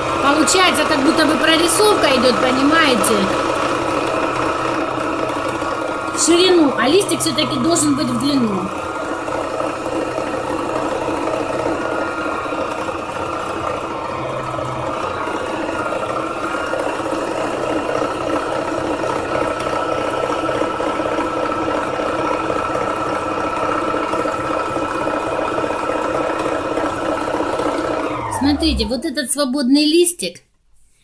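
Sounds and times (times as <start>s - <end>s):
needle-felting machine whining: 0.0s - 29.3s.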